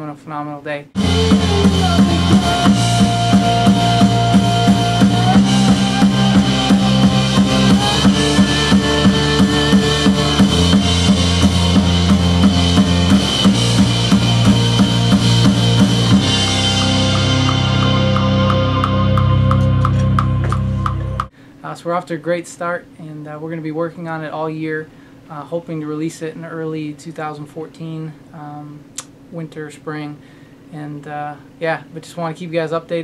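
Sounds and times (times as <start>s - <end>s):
bass line: 1.0s - 21.3s
drum kit beat: 1.0s - 21.3s
long held high notes: 1.0s - 21.3s.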